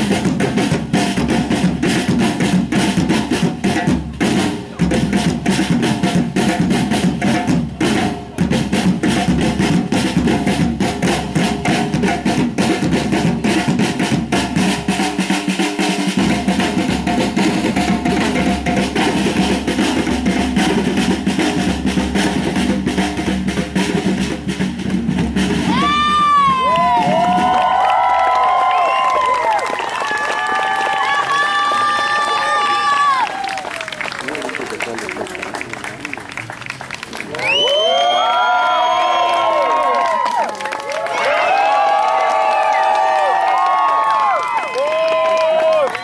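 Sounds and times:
fast dense drumming: 0:00.0 - 0:28.2.

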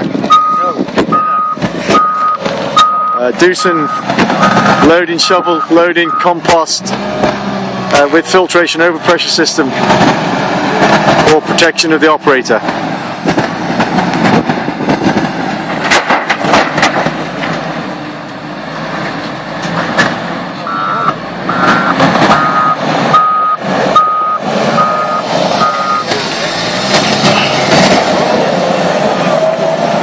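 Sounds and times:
diesel engine under load: 0:00.0 - 0:30.0
reversing alarm beeps: 0:00.3 - 0:06.4, 0:20.7 - 0:26.1.

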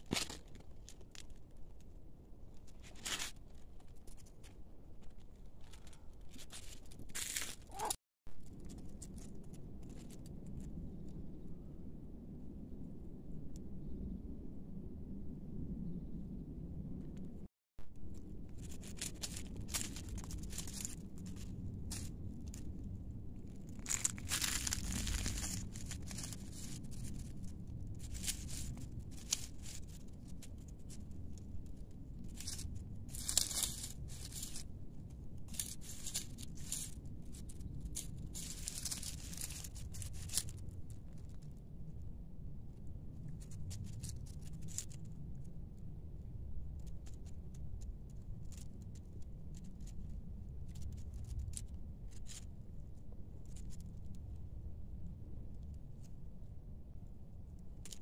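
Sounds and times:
leaves and gravel crunching: 0:05.7 - 0:09.3, 0:18.5 - 0:34.7, 0:35.4 - 0:41.4, 0:43.4 - 0:45.0
low rumble: 0:08.4 - 0:57.8.

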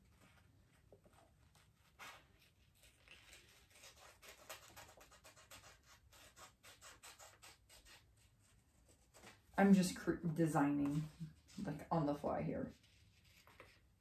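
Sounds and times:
scissors snipping paper: 0:02.8 - 0:08.0.

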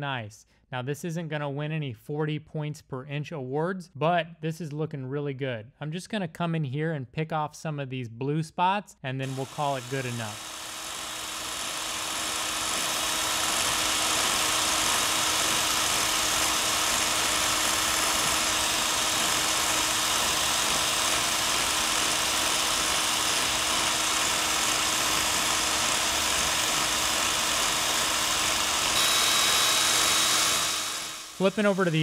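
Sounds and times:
power scraper scraping metal: 0:09.2 - 0:32.0.

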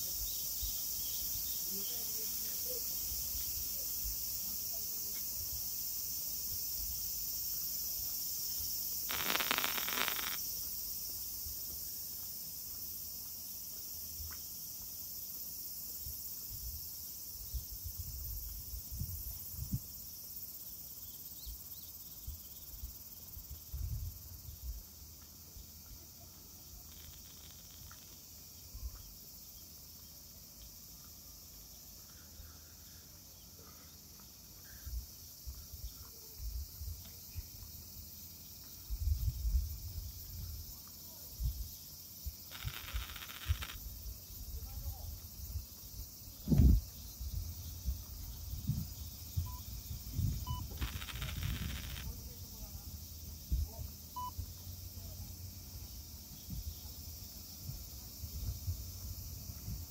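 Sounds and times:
cicadas chirping: 0:00.0 - 0:59.9.

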